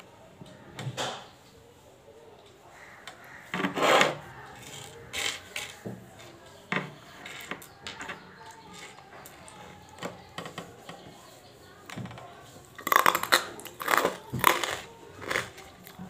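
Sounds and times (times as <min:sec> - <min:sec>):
crystals clicking and scraping on wood: 0:03.6 - 0:05.8, 0:06.8 - 0:10.8, 0:12.7 - 0:15.6.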